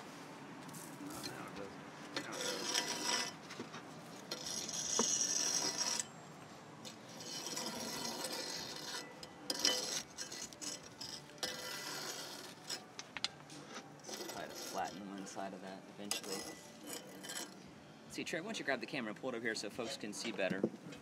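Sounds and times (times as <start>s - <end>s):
metal hook scraping coals: 1.1s - 6.2s, 6.8s - 17.7s.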